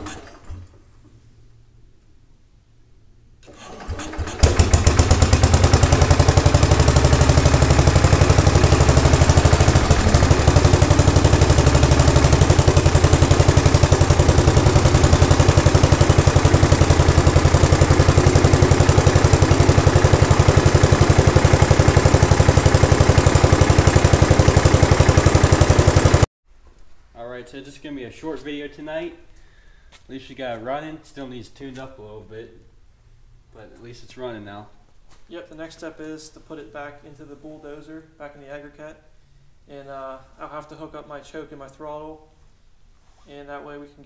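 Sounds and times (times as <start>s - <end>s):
small engine idling: 3.4s - 26.3s.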